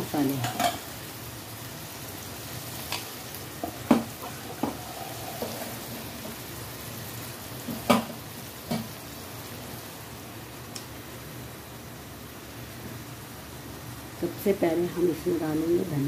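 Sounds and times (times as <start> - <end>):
onions sizzling in a pan: 0.0 - 16.0
spoon scraping and knocking pan: 3.6 - 6.4.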